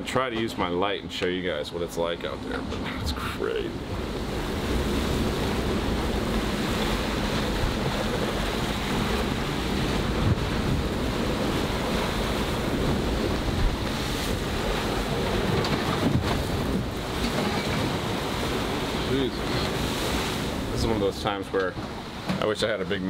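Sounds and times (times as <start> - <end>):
breaking waves rushing: 1.5 - 23.0
wind buffeting microphone: 2.6 - 22.3.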